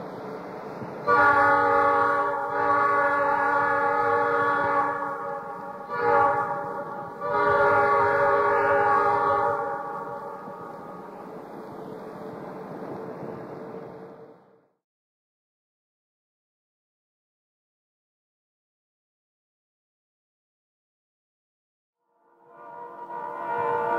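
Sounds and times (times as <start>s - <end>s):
train horn blasts: 0.1s - 14.6s, 22.0s - 23.9s.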